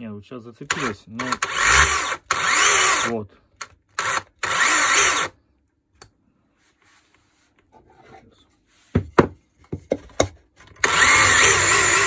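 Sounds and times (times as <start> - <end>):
faint handling and rubbing: 6.4 - 9.7.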